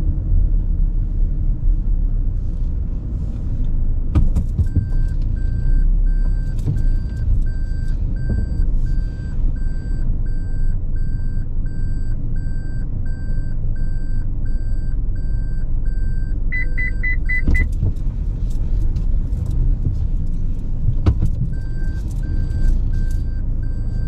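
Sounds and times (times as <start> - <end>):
car engine and road rumble: 0.0 - 24.0
electronic warning beeps: 4.7 - 17.7, 21.5 - 24.0.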